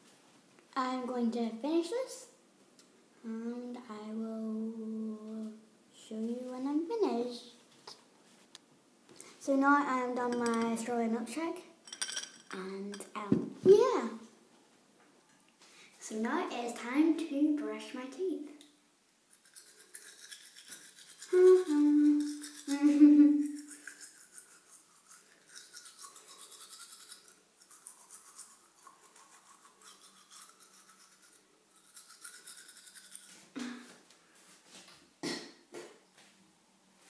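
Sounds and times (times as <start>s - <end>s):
toothbrush scrubbing teeth: 19.3s - 33.5s
child humming: 21.3s - 23.6s.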